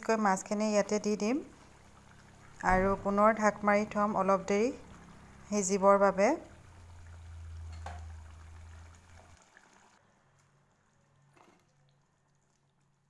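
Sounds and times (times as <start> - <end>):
curry bubbling in a pan: 0.4 - 13.0
steady low hum: 1.4 - 9.4.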